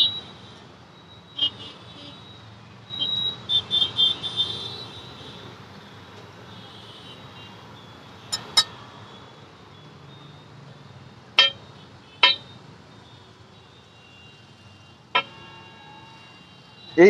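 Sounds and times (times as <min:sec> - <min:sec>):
metal spatula clinking on griddle: 0:08.3 - 0:08.8.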